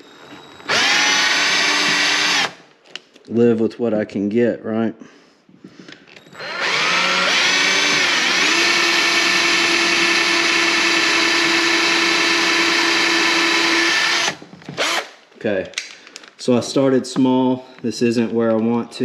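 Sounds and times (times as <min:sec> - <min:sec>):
cordless drill whining: 0:00.0 - 0:02.7, 0:06.2 - 0:15.2.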